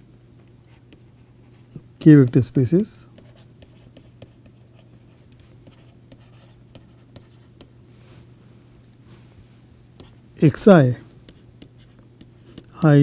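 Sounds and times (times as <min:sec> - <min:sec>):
stylus tapping and scratching: 0:00.3 - 0:07.8, 0:10.0 - 0:10.6, 0:11.2 - 0:12.9.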